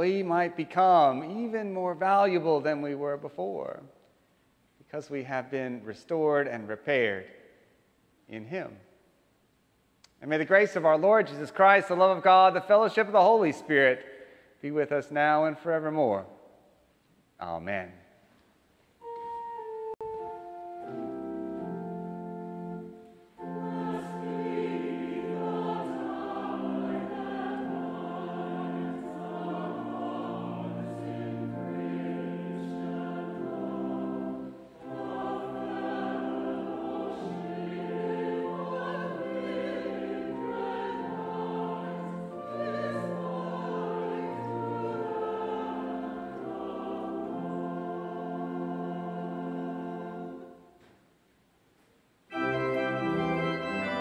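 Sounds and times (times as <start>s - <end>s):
sustained instrumental accompaniment: 19.0s - 50.6s, 52.3s - 54.0s
choir singing held chords: 19.1s - 50.8s, 52.3s - 54.0s.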